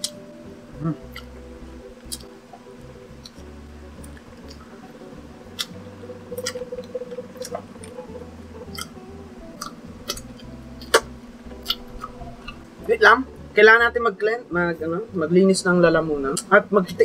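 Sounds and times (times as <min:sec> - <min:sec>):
chewing with wet mouth clicks: 0:01.1 - 0:01.3, 0:02.0 - 0:02.3, 0:05.6 - 0:05.8, 0:08.7 - 0:09.0, 0:09.6 - 0:12.6.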